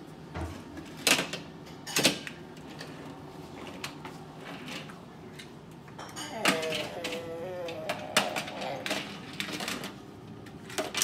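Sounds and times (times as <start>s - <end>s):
toy cars clacking together: 6.3s - 10.0s.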